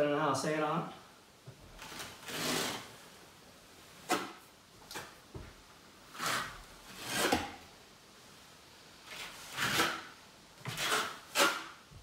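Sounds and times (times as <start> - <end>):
trowel scraping adhesive on wall: 1.8 - 2.9, 6.1 - 7.6, 9.1 - 11.8.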